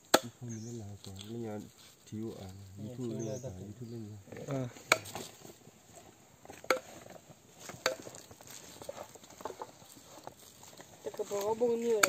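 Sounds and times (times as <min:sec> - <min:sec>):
machete chopping meat on wood: 0:00.1 - 0:00.4, 0:04.8 - 0:05.2.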